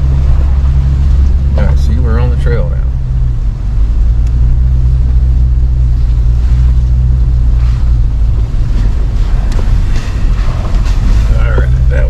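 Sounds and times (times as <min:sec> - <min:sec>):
vehicle engine and road rumble: 0:00.0 - 0:12.0.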